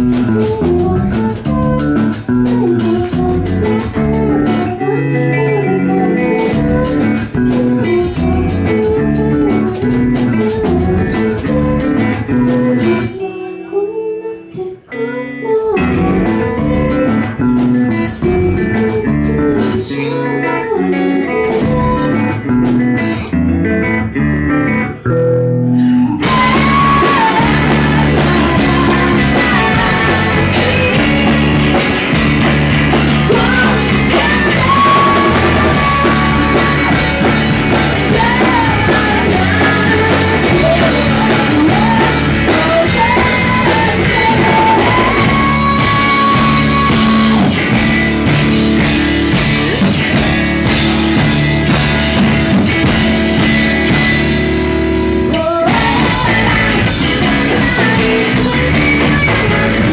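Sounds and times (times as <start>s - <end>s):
rock band playing live: 0.0s - 13.8s, 14.4s - 59.9s
woman singing: 0.0s - 23.4s, 25.8s - 54.4s, 55.2s - 59.9s.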